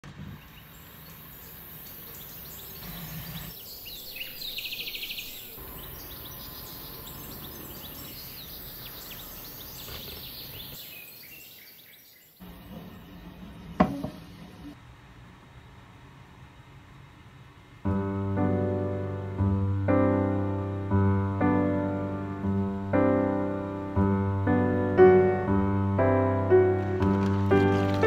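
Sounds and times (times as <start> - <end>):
steady background noise: 0.0 - 11.2
small birds chirping: 0.2 - 14.8.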